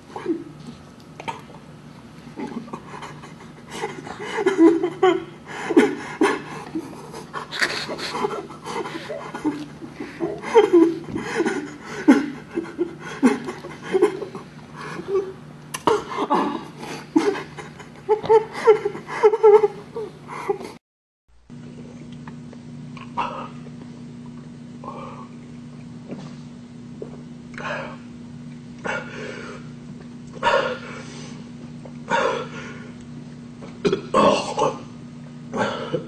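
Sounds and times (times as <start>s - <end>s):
person panting and grunting: 2.4s - 19.7s.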